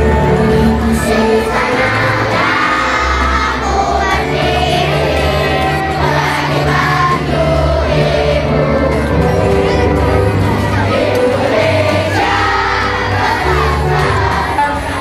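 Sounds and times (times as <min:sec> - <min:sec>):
children singing in unison: 0:00.0 - 0:15.0.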